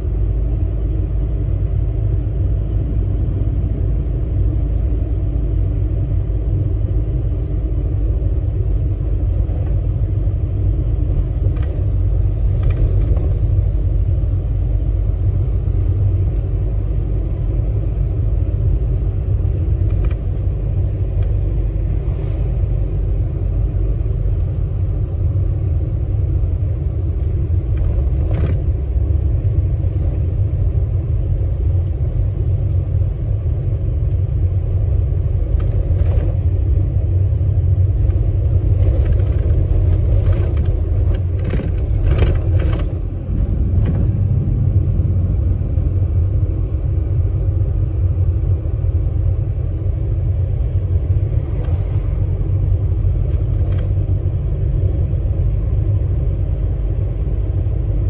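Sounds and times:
bus engine and road rumble: 0.0 - 58.0.

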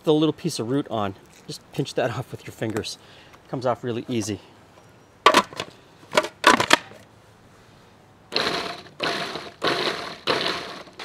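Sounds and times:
sharp clicks and knocks: 5.2 - 7.0
food processor pulsing: 8.3 - 11.0.

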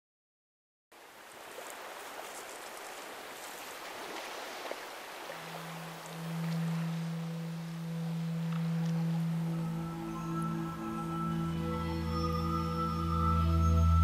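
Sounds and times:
water lapping on stony shore: 1.0 - 9.6
low steady tone: 5.2 - 14.0.

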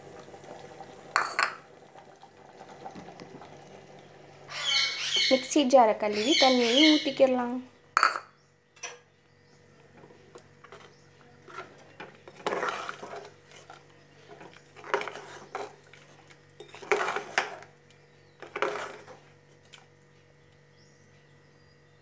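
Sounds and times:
metal ladle scraping a pot: 10.6 - 17.6, 18.4 - 19.2.

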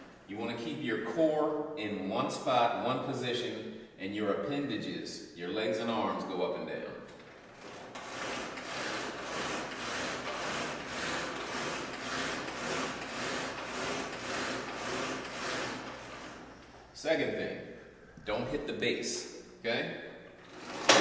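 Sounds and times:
climbing machine rasping whoosh: 7.4 - 16.7.

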